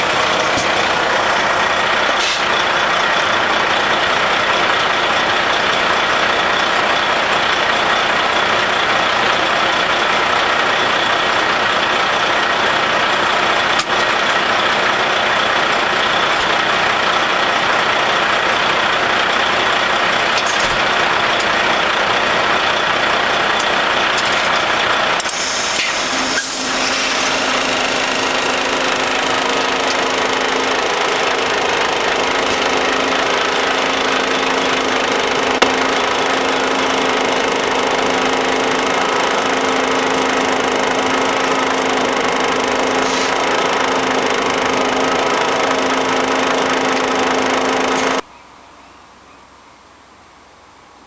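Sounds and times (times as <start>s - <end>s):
truck hydraulics lifting: 0.0s - 6.3s, 20.2s - 48.2s.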